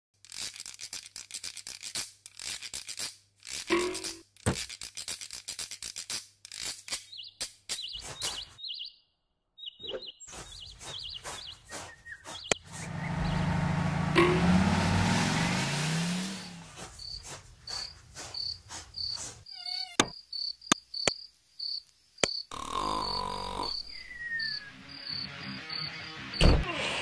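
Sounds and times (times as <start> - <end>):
scratchy clicking strokes: 0.2 - 8.4
high bird-like chirps: 7.0 - 13.4, 19.0 - 26.1
motor running rising pitch: 12.6 - 16.8.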